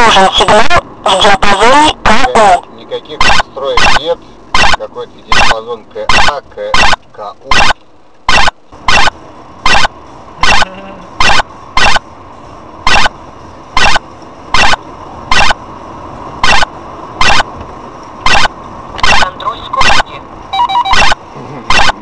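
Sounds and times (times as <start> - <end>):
harsh alert beeps: 3.2 - 4.0, 4.6 - 12.0, 12.9 - 13.1, 13.8 - 15.6, 16.4 - 17.5, 18.2 - 22.0.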